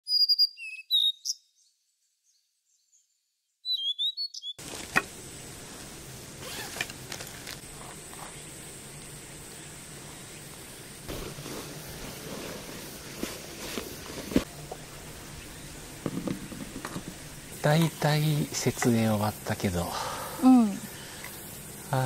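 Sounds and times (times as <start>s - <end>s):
short bird chirps: 0.0s - 4.6s
steady outdoor hiss: 4.5s - 22.0s.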